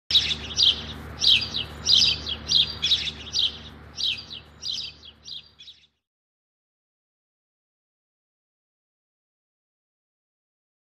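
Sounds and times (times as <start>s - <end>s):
songbird chirping: 0.1s - 6.0s.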